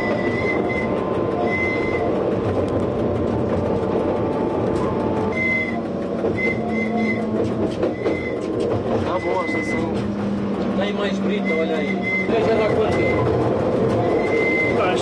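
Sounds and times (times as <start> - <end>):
high-pitched wheel squeals: 0.0 - 2.2, 4.8 - 10.2, 10.8 - 15.0
railcar engine and wheels rumbling: 0.0 - 15.0.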